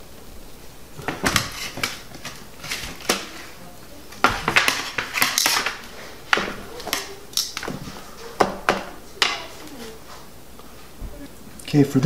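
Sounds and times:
metal tongs clinking on sheet pans: 4.2 - 7.8.

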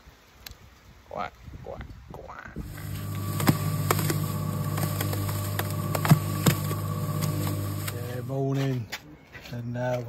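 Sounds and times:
paddle mixer motor drone: 2.6 - 8.4.

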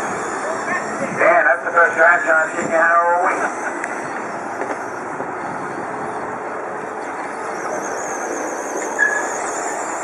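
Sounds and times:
high wavering motor whine: 0.0 - 10.0
rc trucks racing on dirt: 0.0 - 10.0.

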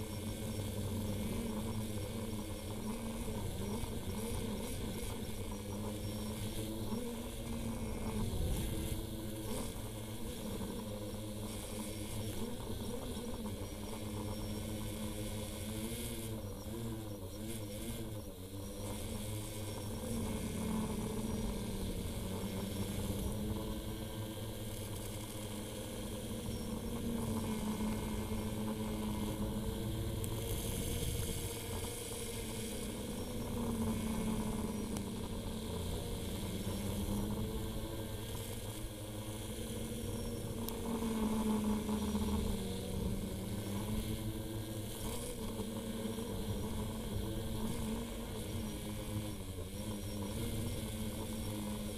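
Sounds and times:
drone propellers whirring: 0.0 - 51.9.

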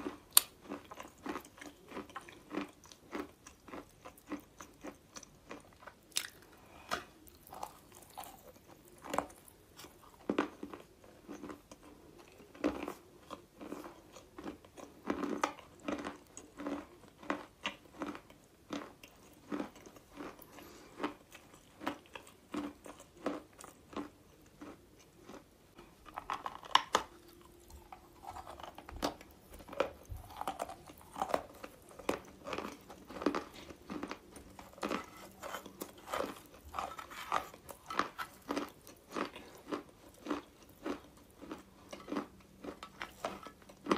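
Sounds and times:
chewing crunchy chalk: 12.5 - 43.9.

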